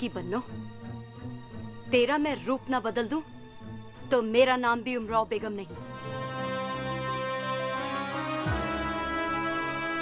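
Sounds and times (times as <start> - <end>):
dramatic sustained chords: 5.8 - 10.0.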